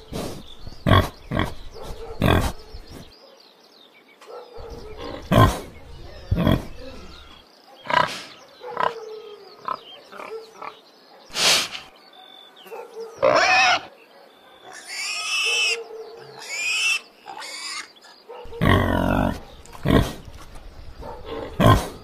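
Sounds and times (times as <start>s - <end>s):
pigs grunting and snorting: 0.0s - 3.1s, 4.6s - 9.0s, 13.2s - 13.9s, 14.6s - 22.0s
pigs squealing: 13.2s - 13.9s, 14.7s - 15.8s, 16.4s - 20.2s.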